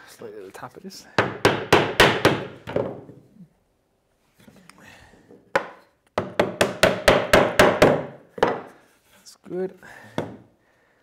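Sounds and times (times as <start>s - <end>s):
wooden mallet tapping timber: 5.5s - 8.7s.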